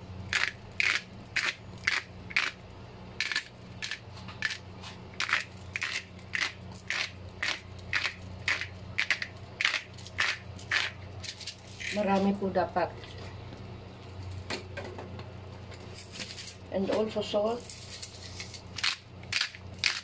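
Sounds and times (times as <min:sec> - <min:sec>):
pepper mill grinding: 0:00.3 - 0:02.6, 0:03.2 - 0:12.3, 0:17.6 - 0:20.0.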